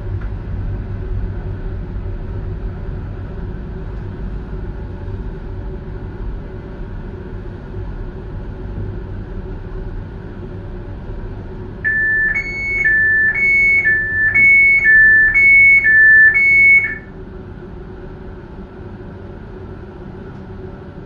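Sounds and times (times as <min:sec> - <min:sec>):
two-tone electronic warning signal: 0:11.8 - 0:17.1.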